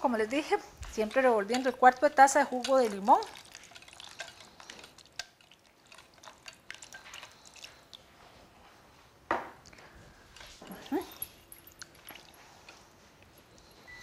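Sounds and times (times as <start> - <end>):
whisk scraping and clicking in pot: 0.9 - 7.8.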